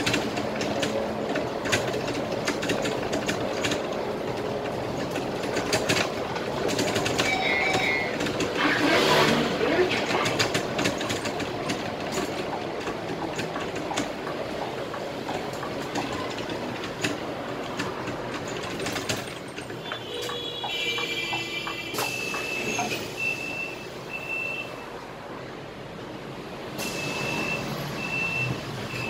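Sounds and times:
rattles and clicks: 0.0 - 23.0
bus engine and road noise: 0.0 - 29.0.

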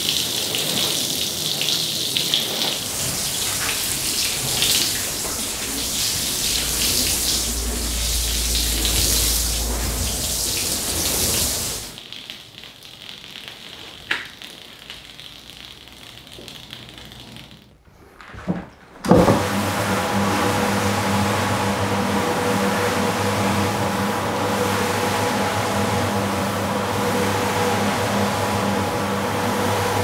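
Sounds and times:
watering can spraying: 2.7 - 12.0
faint hiss: 2.8 - 12.0.

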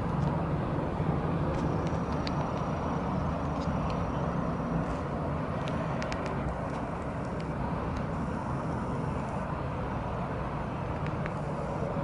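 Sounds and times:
distant city traffic rumble: 0.0 - 12.0.

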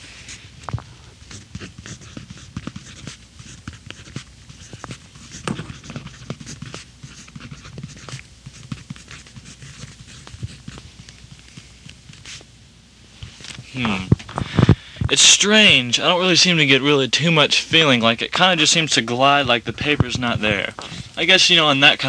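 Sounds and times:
pencil scratching on paper: 1.2 - 12.4.

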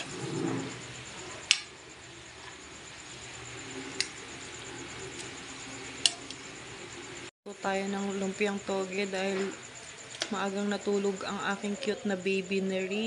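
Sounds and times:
oil sizzling: 0.0 - 7.3.

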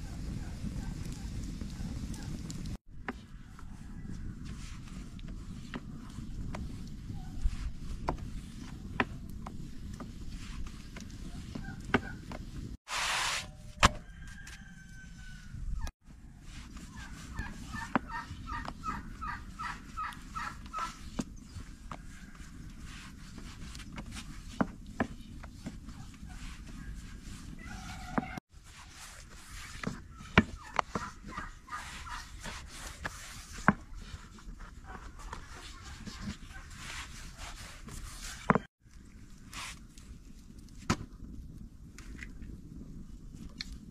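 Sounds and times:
poultry clucking: 16.9 - 21.0, 30.2 - 32.4
rolling pin on wooden board: 20.2 - 28.4, 29.5 - 38.7.

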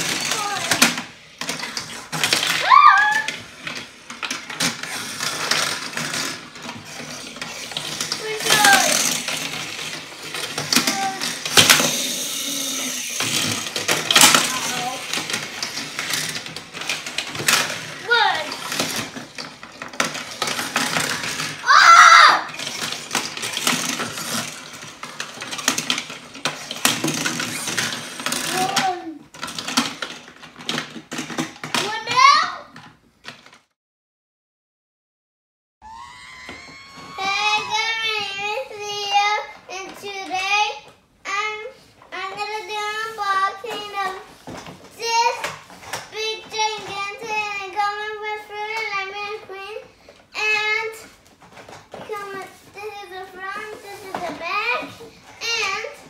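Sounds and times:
toy cars clattering on plastic: 0.0 - 33.7, 36.6 - 56.0
child's voice: 0.2 - 1.0, 2.6 - 3.4, 8.1 - 9.3, 10.6 - 11.5, 14.1 - 15.2, 18.0 - 18.6, 28.4 - 29.3, 31.8 - 32.7, 36.6 - 44.3, 45.0 - 51.1, 52.0 - 56.0.

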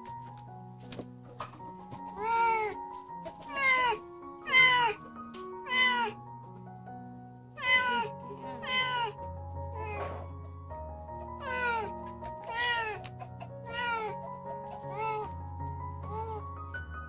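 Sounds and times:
background music: 0.0 - 17.0
cat meowing loudly: 2.2 - 2.7, 3.5 - 5.0, 5.6 - 6.2, 7.6 - 9.2, 9.8 - 10.0, 11.4 - 11.9, 12.5 - 13.0, 13.7 - 14.2, 14.9 - 15.3.

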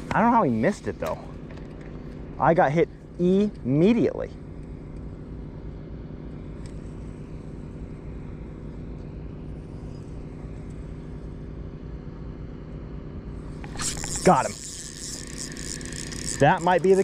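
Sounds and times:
low engine drone: 0.0 - 17.0.

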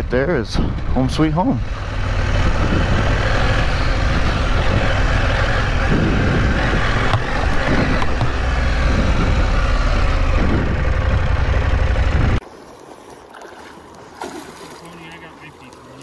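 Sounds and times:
motorcycle engine at speed: 0.0 - 12.4
wind noise: 0.0 - 12.4.

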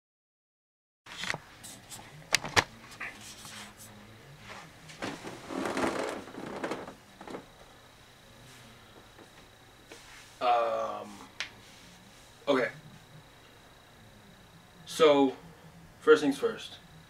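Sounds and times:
rustling and shuffling: 1.1 - 7.6, 8.4 - 10.4.

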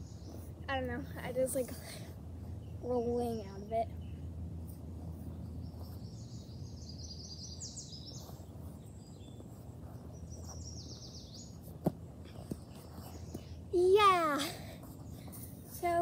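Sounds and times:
songbird singing with trill: 0.0 - 0.4, 5.4 - 11.6
low outdoor hum: 0.0 - 16.0.

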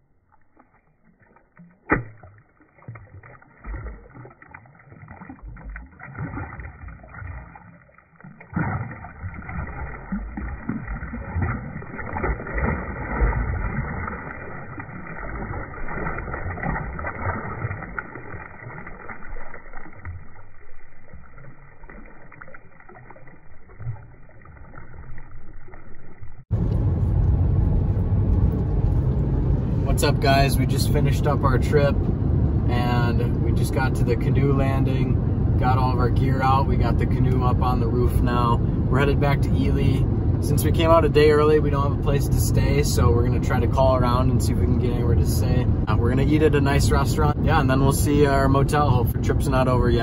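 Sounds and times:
water splashing and sloshing: 0.0 - 50.0
road noise inside moving car: 26.5 - 50.0.

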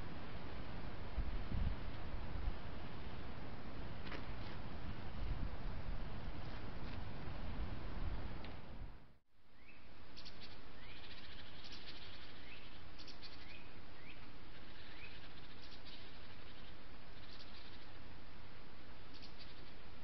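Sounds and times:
small birds chirping: 9.5 - 18.2, 19.0 - 20.0.

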